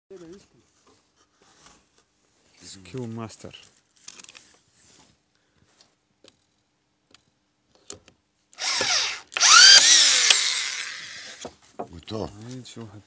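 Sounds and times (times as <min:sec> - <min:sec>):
electric screwdriver motor whining: 0:08.6 - 0:11.4.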